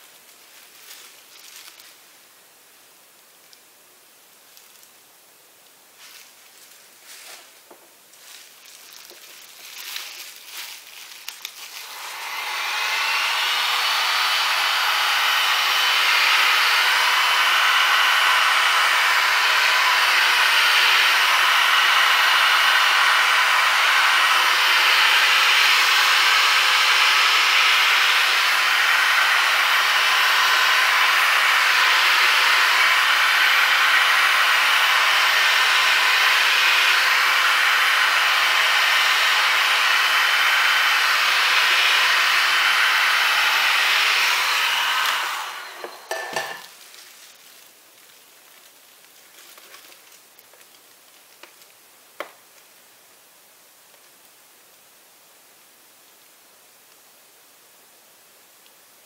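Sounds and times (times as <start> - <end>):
rustling: 0.0 - 2.2, 4.4 - 5.0, 5.9 - 11.9, 46.6 - 51.8
hot-air blower rushing: 11.7 - 46.7.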